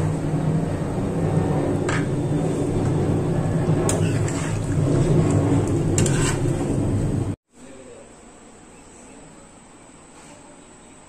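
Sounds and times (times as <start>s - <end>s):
steady low hum: 0.0s - 10.0s
spatula scraping frying pan: 2.0s - 7.0s.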